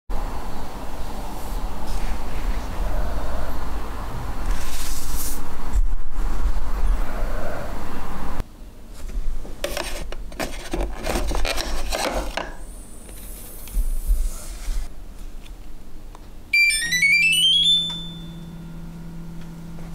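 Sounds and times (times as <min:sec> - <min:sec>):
plastic remote scraping and clicking: 0:09.6 - 0:12.4.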